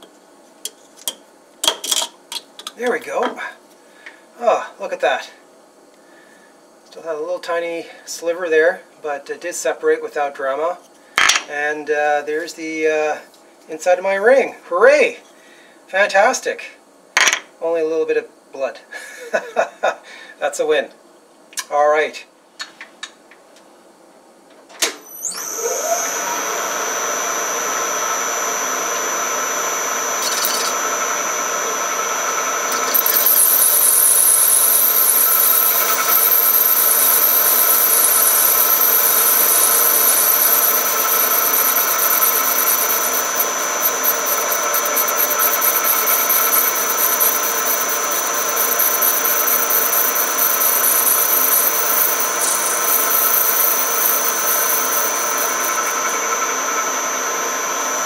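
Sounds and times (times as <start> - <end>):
metal lathe whine: 25.1 - 58.0.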